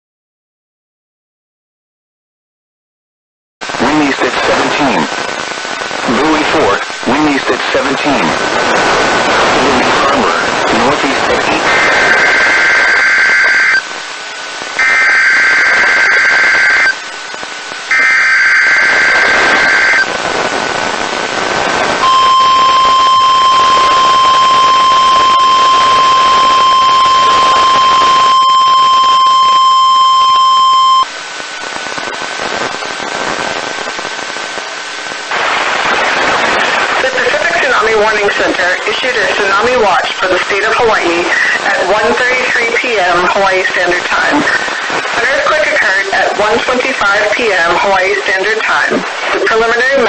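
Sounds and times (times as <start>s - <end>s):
radio hiss: 3.6s - 50.0s
steady alarm tone: 14.8s - 17.0s, 17.9s - 20.0s, 22.0s - 31.1s
warbling digital data bursts: 22.0s - 31.0s.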